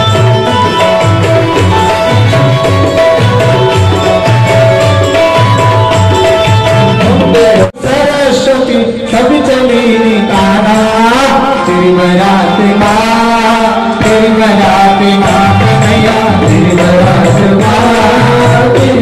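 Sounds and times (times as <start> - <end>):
amplified instrumental backing: 0.0 - 19.0
man singing into a microphone: 6.9 - 19.0.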